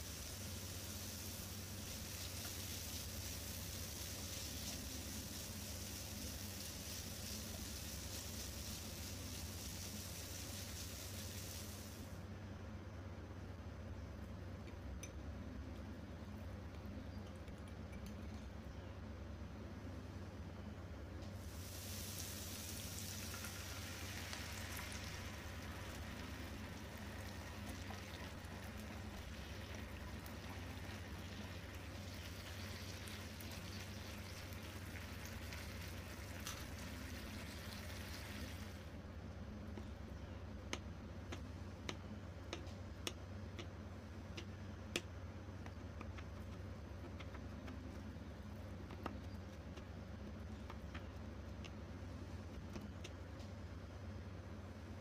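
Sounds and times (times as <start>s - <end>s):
food sizzling in a pan: 0.0s - 12.1s, 21.4s - 38.9s
steady low hum: 0.0s - 55.0s.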